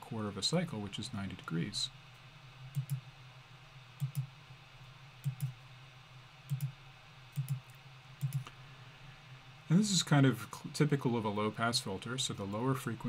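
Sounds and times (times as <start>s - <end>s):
computer mouse clicks: 2.7s - 3.0s, 4.0s - 4.3s, 5.2s - 5.6s, 6.5s - 8.6s.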